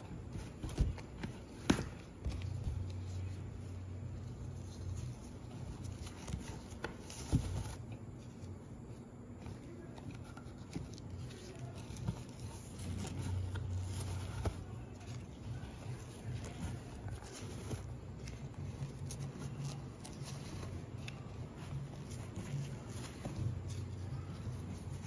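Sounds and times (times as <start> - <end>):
fabric strips rubbing and rustling: 0.0 - 25.0
low steady hum: 0.0 - 25.0.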